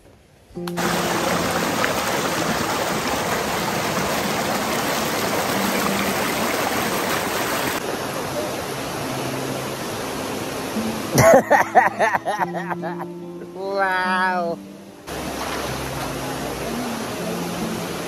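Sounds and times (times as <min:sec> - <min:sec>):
river water rushing over rocks: 0:00.8 - 0:18.0.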